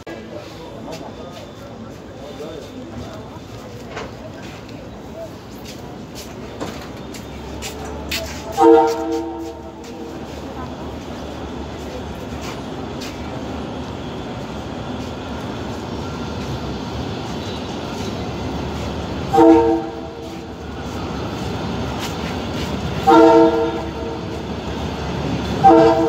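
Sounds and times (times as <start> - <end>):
train rumbling: 0.0 - 26.0
train horn blasts: 8.3 - 10.1, 19.3 - 20.5, 23.0 - 24.4, 25.5 - 26.0.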